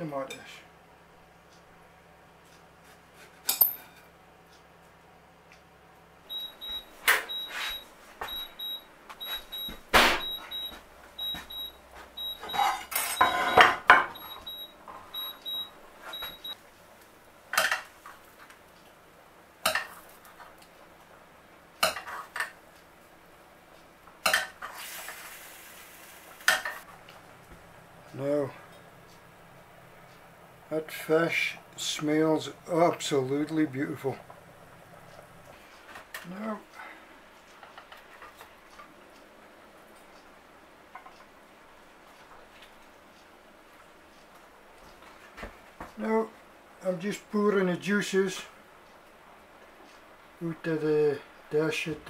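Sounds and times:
kitchen appliance beeping: 6.3 - 16.6
utensils clinking on plates: 12.4 - 14.5.

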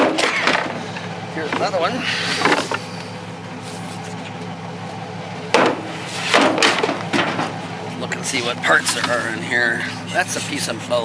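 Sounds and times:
steady low hum: 0.0 - 11.0
skis and poles knocking on truck bed: 5.5 - 7.6.

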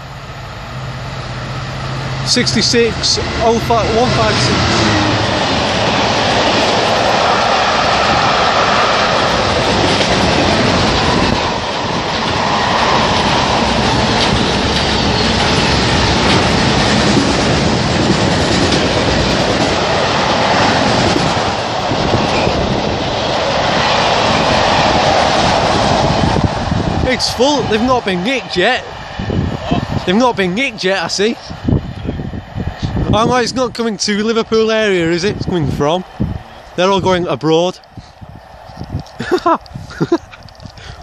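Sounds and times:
freight train rolling past: 0.0 - 41.0.

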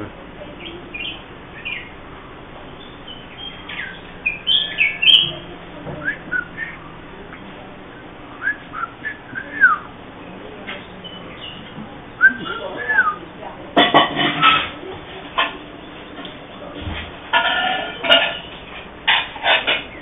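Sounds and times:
bird calling with whistled chirps: 0.6 - 2.0, 2.8 - 5.4, 6.0 - 6.8, 8.4 - 9.9, 12.2 - 13.2.

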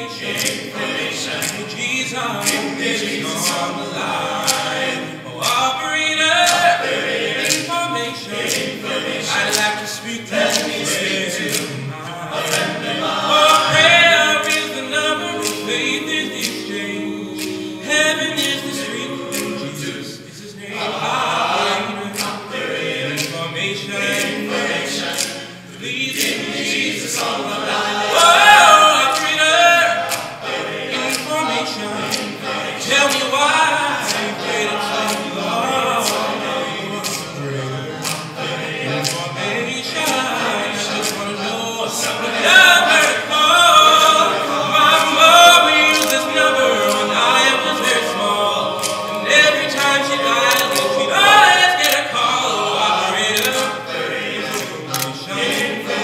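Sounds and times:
male a cappella group singing: 0.0 - 56.0
finger snaps: 0.4 - 0.7, 1.4 - 1.6, 2.4 - 2.6, 11.4 - 11.7, 19.3 - 19.6, 30.1 - 30.3, 48.8 - 49.2.

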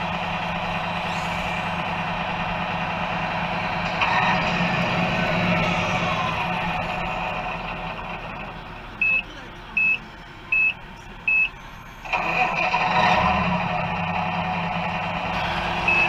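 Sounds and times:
steady engine sound: 0.0 - 16.0
short reversing beeps: 15.4 - 16.0.

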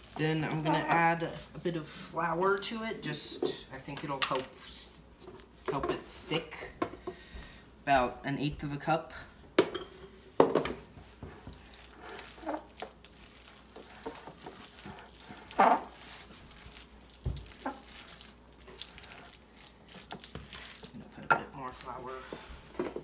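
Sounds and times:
spoon stirring wet food: 10.8 - 23.0.

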